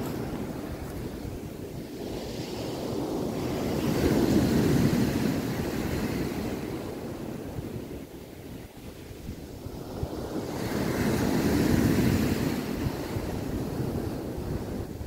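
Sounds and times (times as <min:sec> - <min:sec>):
sea surf washing on shore: 0:00.0 - 0:15.0
wind rumbling on microphone: 0:00.0 - 0:15.0.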